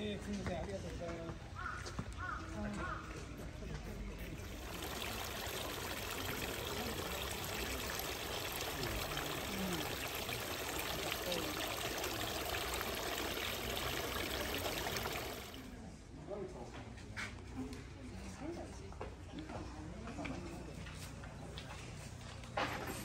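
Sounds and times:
water trickling into stone basin: 4.2s - 15.8s.

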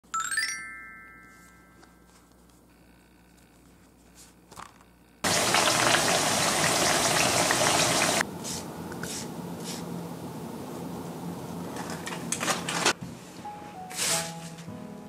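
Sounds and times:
potato slices sizzling in oil: 5.2s - 8.2s.

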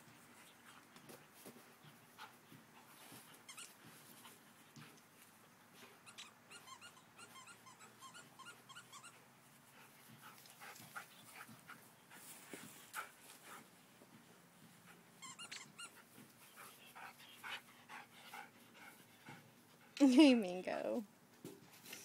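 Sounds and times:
dogs whimpering and squeaking: 3.4s - 3.9s, 6.0s - 9.2s, 15.2s - 16.2s.

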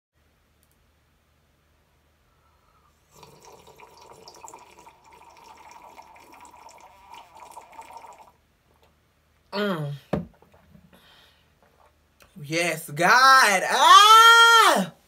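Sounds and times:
person slurping tea: 3.0s - 8.3s.

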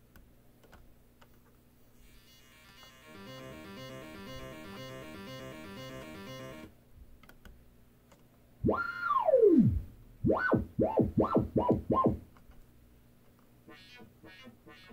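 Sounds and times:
synthesizer tone sliding in pitch: 2.3s - 6.7s.

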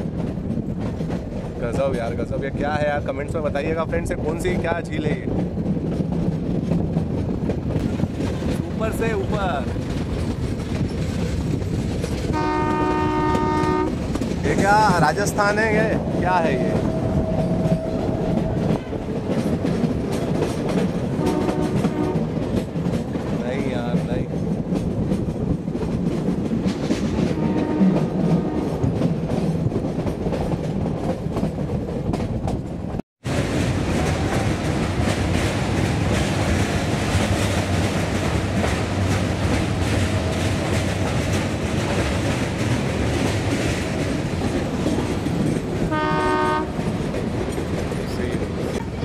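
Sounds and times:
clickety-clack over rail joints: 0.0s - 49.0s
train wheels rumbling: 0.0s - 49.0s
locomotive horn blast: 12.3s - 14.0s, 21.2s - 22.3s, 27.4s - 28.8s, 45.9s - 46.9s.

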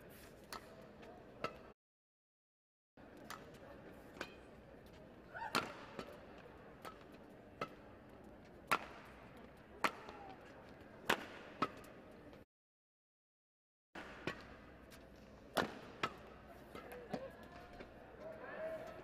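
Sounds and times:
rackets hitting shuttlecock: 1.4s - 1.7s, 8.7s - 9.2s, 9.8s - 10.4s, 11.0s - 12.0s, 15.5s - 17.9s.

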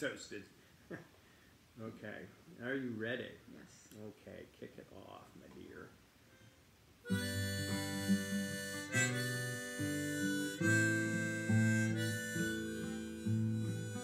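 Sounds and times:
harmonica held notes: 7.0s - 14.0s
acoustic guitar strumming chords: 7.1s - 14.0s.

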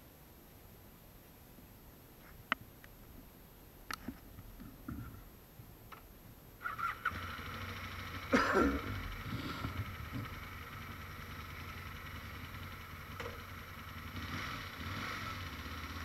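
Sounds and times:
faint clicks: 3.8s - 5.2s
motorcycle engine starting and idling: 5.9s - 16.0s.

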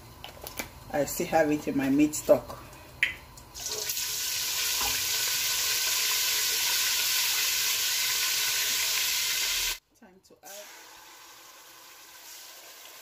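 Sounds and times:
food sizzling in hot oil: 3.6s - 9.8s, 10.5s - 13.0s.

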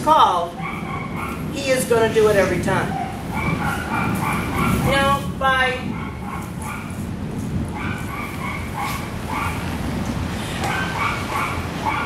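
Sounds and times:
dog whining: 0.5s - 1.5s, 2.9s - 4.9s, 7.7s - 9.7s, 10.6s - 12.0s.

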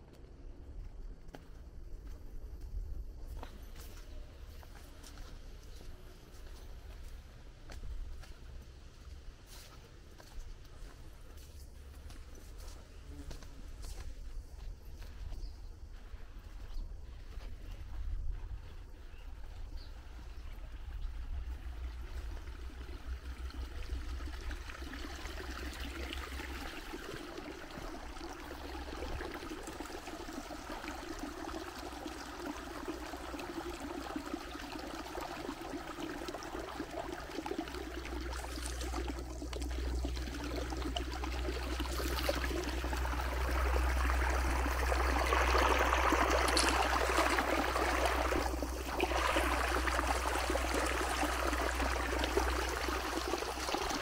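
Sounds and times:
low steady rumble: 6.6s - 32.0s, 37.6s - 54.0s
running water rushing: 18.3s - 54.0s.

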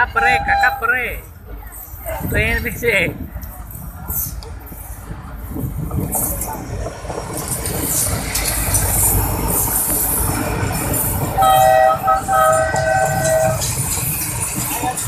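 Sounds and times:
train rumbling over track: 0.0s - 15.0s
train horn: 11.4s - 13.8s.

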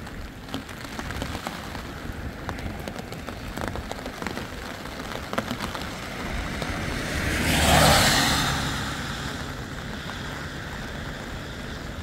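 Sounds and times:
heavy rain falling: 0.0s - 12.0s
raindrops ticking on a surface: 0.0s - 12.0s
loud rushing noise: 6.1s - 9.6s.

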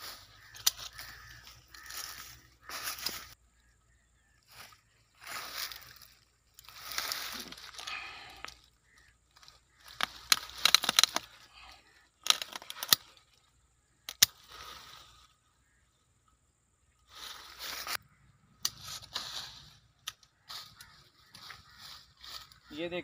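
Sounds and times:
pruning shears cracking wood: 0.4s - 2.2s, 9.3s - 11.5s, 12.2s - 14.7s.

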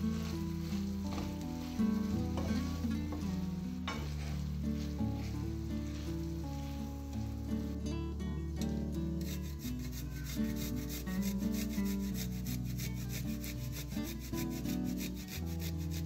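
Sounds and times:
garlic grated on metal grater: 9.2s - 16.0s.

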